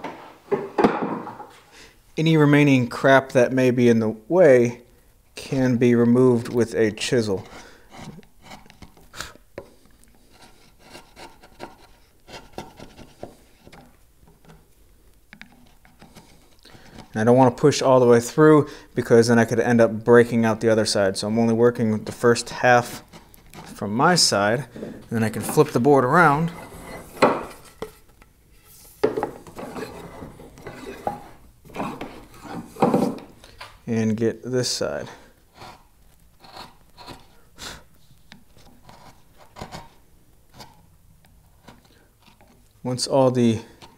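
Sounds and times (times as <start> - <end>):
chisel scraping through wood: 7.2 - 14.6, 15.4 - 17.2, 22.0 - 23.8, 24.7 - 33.3, 35.5 - 37.5, 38.6 - 40.8.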